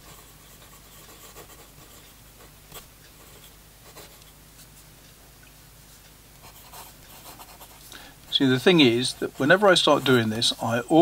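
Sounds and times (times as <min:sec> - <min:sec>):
fountain pen scratching on paper: 0:00.0 - 0:02.1, 0:06.4 - 0:10.7.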